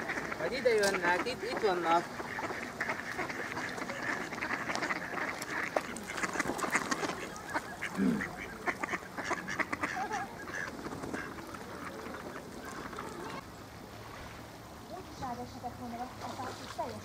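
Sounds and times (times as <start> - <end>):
ducks quacking: 0.0 - 13.4.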